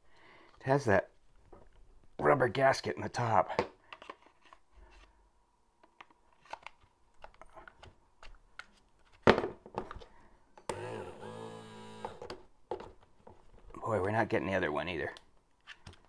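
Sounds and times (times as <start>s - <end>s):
plastic clicks and handling: 3.6s - 4.7s, 5.8s - 10.8s, 15.1s - 16.0s
small electric motor whirring: 10.7s - 12.3s.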